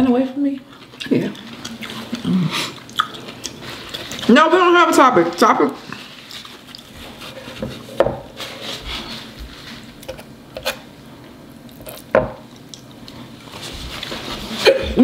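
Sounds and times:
fork working food on wooden board: 0:10.0 - 0:10.8.

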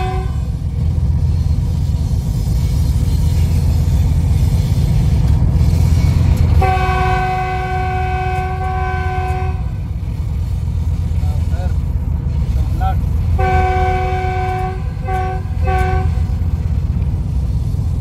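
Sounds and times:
locomotive horn blast: 0:00.0 - 0:00.7, 0:06.4 - 0:09.9, 0:13.3 - 0:16.7
locomotive engine chugging: 0:00.0 - 0:18.0.

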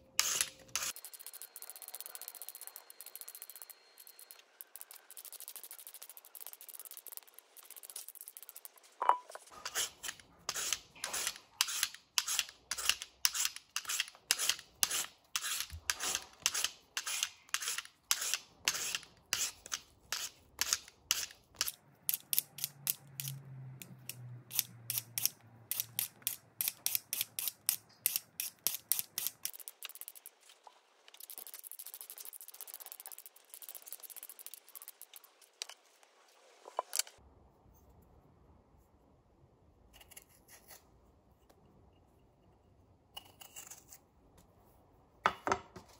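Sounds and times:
vegetable peeler scraping potato: 0:00.2 - 0:08.8, 0:09.4 - 0:30.4.

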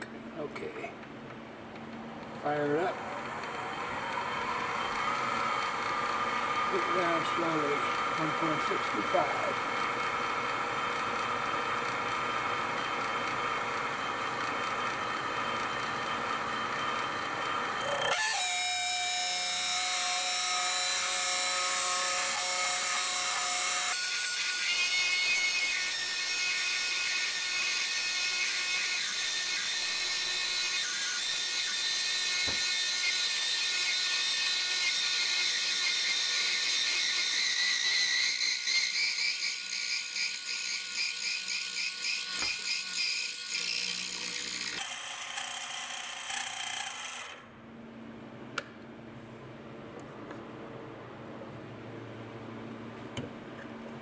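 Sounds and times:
boring bar cutting metal: 0:02.7 - 0:47.4
high-pitched cutting screech: 0:17.8 - 0:47.4.

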